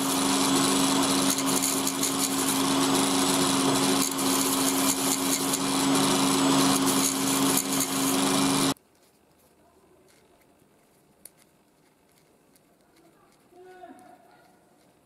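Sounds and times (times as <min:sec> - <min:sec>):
grinding disc motor humming: 0:00.0 - 0:08.8.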